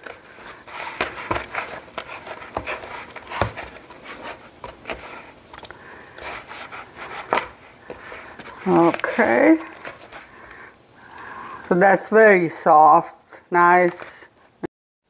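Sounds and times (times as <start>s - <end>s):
hands kneading dough: 0.0s - 12.0s.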